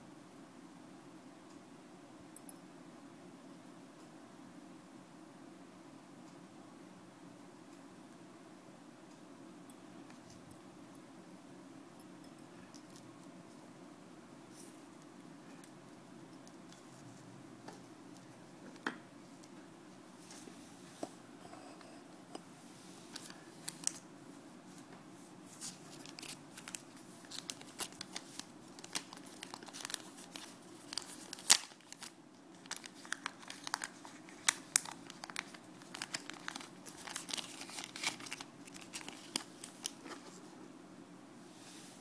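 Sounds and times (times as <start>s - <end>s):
faint low hum: 0.0s - 42.0s
plastic packet crinkling: 25.6s - 40.4s.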